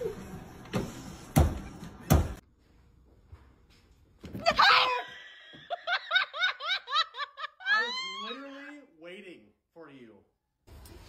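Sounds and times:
person screaming: 4.6s - 5.2s, 7.7s - 8.6s.

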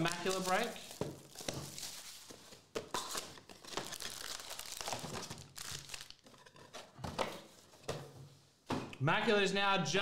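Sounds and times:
foil packs crinkling: 0.0s - 6.3s.

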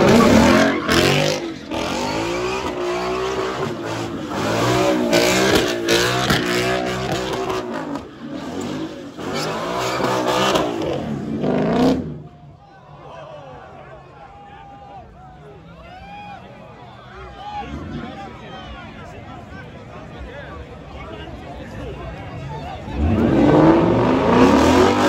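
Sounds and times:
tyres screeching: 0.0s - 11.0s
car engine revving: 0.0s - 12.3s, 22.9s - 25.0s.

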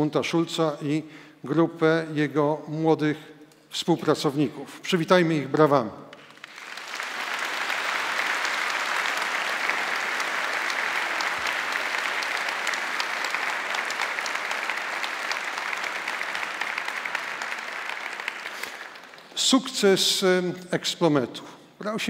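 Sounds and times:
audience applauding: 6.1s - 19.9s.

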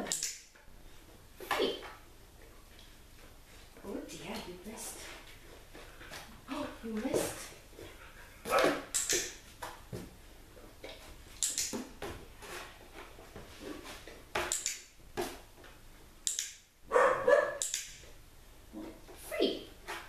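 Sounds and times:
puppy barking: 16.9s - 17.6s.

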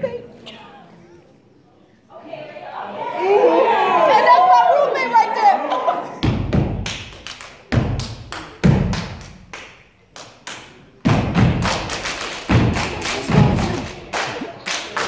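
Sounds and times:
heavy foot stomps: 12.5s - 13.8s.

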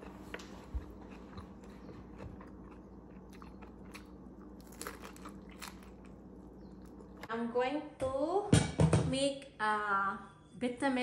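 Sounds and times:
person chewing food: 0.0s - 7.3s.

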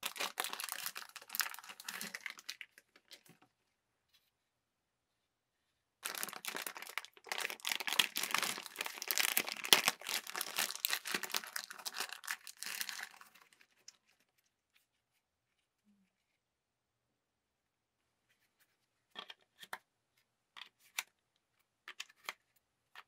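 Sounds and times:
plastic bag crinkling: 0.0s - 3.2s, 6.0s - 14.0s.

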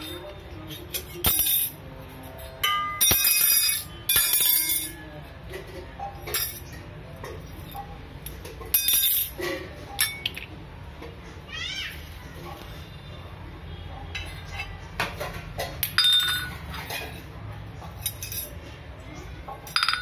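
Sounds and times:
metal utensils clattering on floor: 0.0s - 10.5s, 14.1s - 18.8s, 19.4s - 20.0s.

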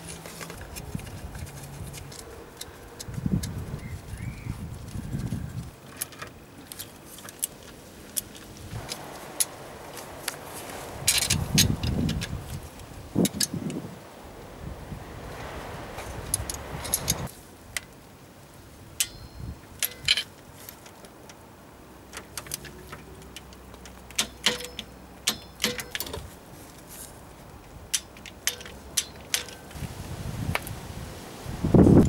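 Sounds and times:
hand tools clicking on metal: 13.2s - 13.8s, 16.3s - 17.3s, 19.0s - 21.4s, 22.1s - 26.3s, 27.9s - 29.8s.

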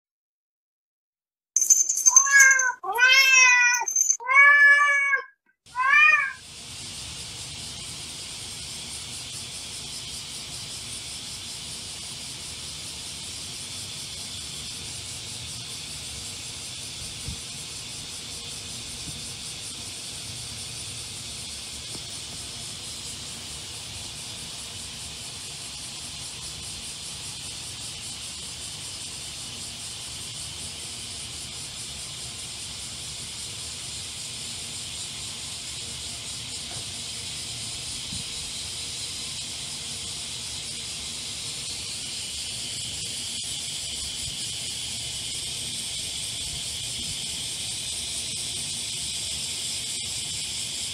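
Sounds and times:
cat meowing: 2.1s - 6.4s
cicada chorus hiss: 5.7s - 50.9s.

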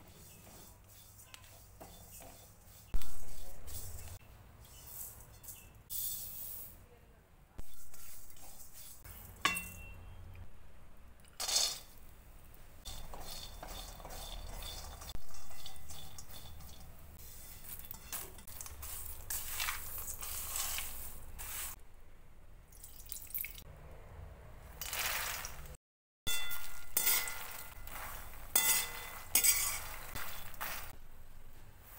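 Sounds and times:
spatula scraping steel pan: 0.0s - 5.7s, 7.7s - 9.1s, 12.8s - 21.8s, 26.3s - 31.0s
seeds and nuts rustling on metal: 0.0s - 6.8s, 7.7s - 9.6s, 12.8s - 21.8s, 24.7s - 31.0s
metal clink: 9.4s - 10.0s.

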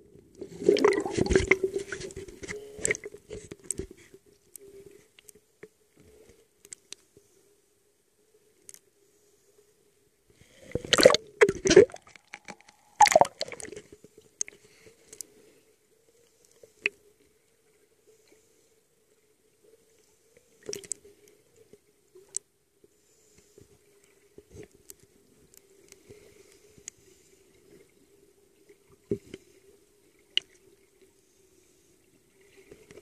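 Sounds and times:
faint steady hum: 0.0s - 33.0s
churning water and bubbles: 0.4s - 3.2s, 10.7s - 13.9s.

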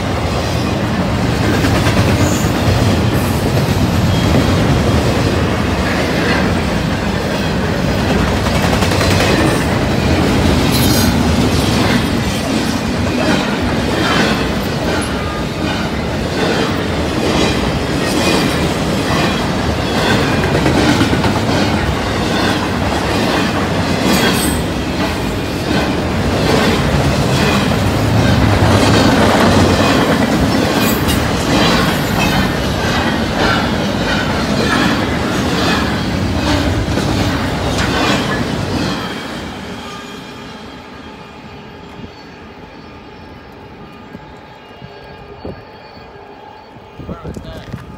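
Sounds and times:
freight train rumbling: 0.0s - 47.9s
wheels clacking over rail joints: 1.0s - 39.3s.

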